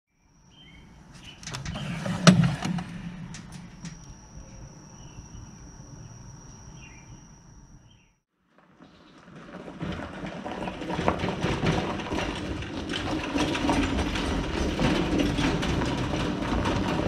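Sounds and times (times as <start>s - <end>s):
metal drawer sliding open: 1.1s - 4.2s.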